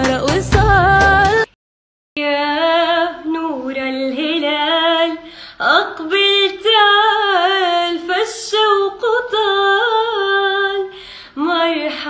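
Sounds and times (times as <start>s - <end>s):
woman singing melismatic song: 0.0s - 1.5s, 2.2s - 12.0s
singer breathing: 5.2s - 5.6s, 10.9s - 11.4s.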